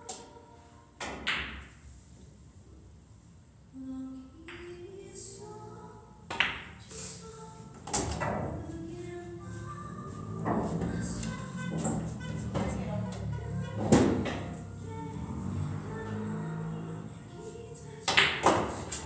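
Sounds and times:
pool cue striking balls: 1.0 - 1.8, 10.0 - 12.8, 13.6 - 14.6, 18.0 - 19.0
background music: 4.6 - 19.0.

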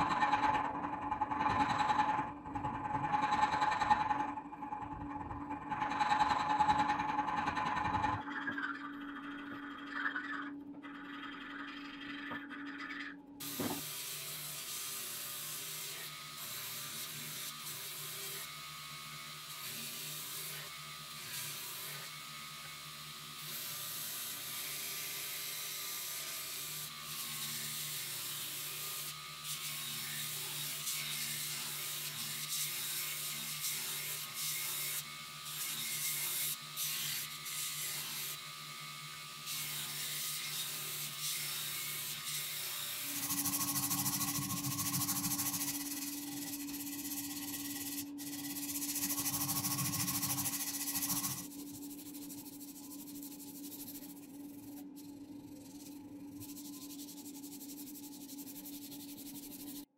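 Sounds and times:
sandpaper scratching on wood: 43.2 - 59.9.

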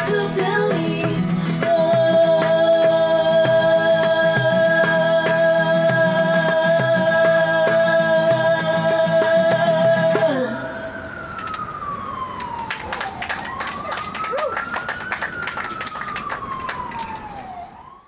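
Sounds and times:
tambourine hits: 0.0 - 10.5
acoustic guitar: 0.0 - 10.9
woman singing: 0.0 - 11.0
siren falling in pitch: 10.4 - 18.0.

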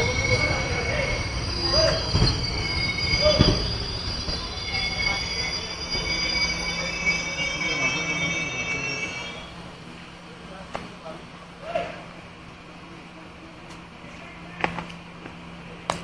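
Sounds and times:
train wheels and brakes squealing: 0.0 - 10.0.

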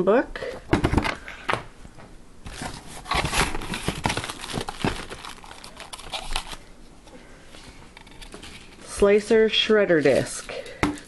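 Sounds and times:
plastic wrap crinkling: 2.5 - 6.7.

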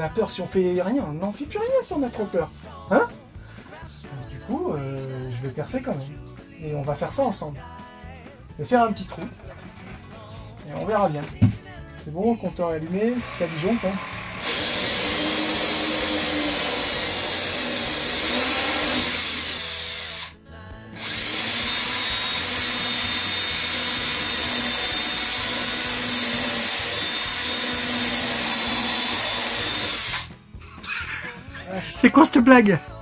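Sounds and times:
cordless drill running: 13.1 - 30.3.

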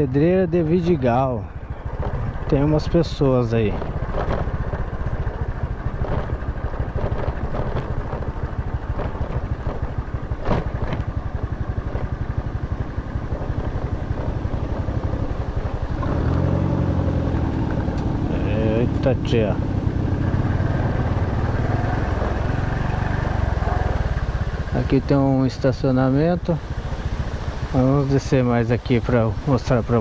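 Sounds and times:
motor scooter engine running: 1.5 - 30.0.

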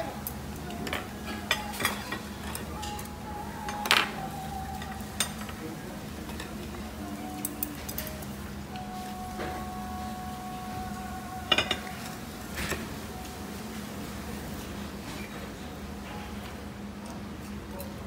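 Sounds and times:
steady low hum: 0.0 - 18.0
cutlery clinking on plates: 0.8 - 4.2, 7.4 - 8.3, 11.5 - 12.9.

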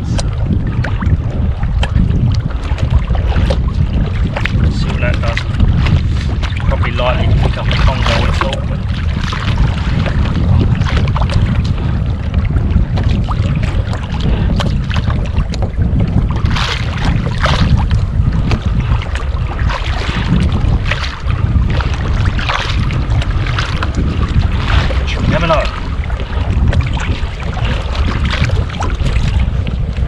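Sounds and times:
small waves slapping a hull: 0.0 - 30.0
wind buffeting microphone: 0.0 - 30.0.

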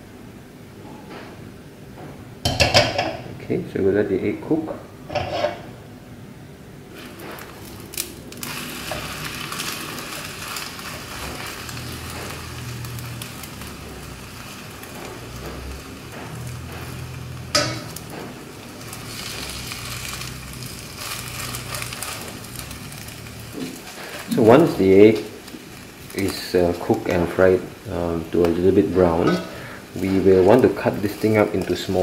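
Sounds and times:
egg sizzling in oil: 6.9 - 32.0.

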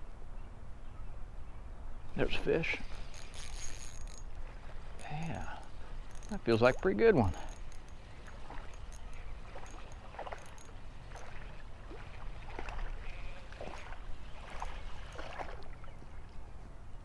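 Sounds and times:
fishing reel ticking: 2.4 - 11.6
fish splashing: 2.8 - 15.8.

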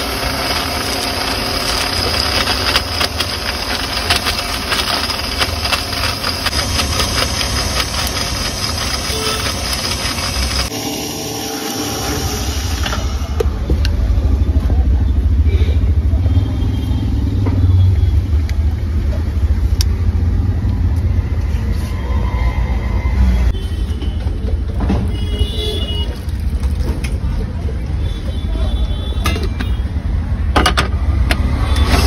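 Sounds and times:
street background rumble: 12.5 - 32.0.

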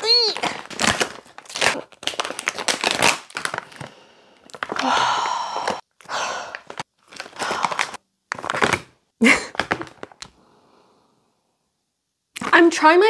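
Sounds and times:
plastic pouch crinkling: 0.0 - 4.9, 5.6 - 8.9.

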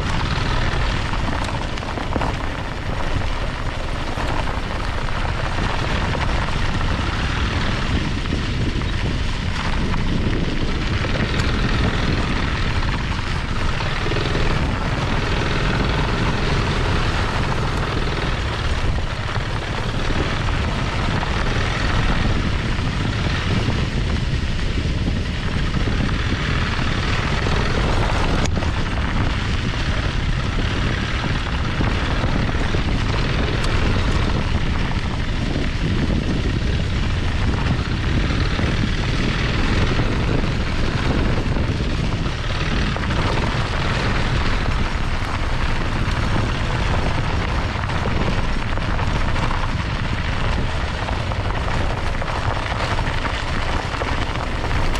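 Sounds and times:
tyres on dirt and gravel: 0.0 - 54.9
wind on microphone: 0.0 - 54.9.

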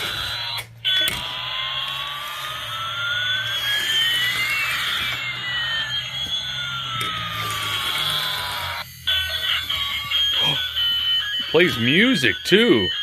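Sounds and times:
electronic toy hissing with pitch glides: 1.6 - 11.0.

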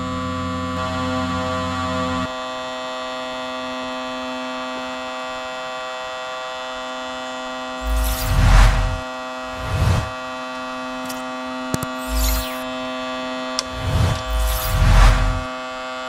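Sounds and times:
loud rumbling rush: 7.8 - 10.2, 13.6 - 15.5.

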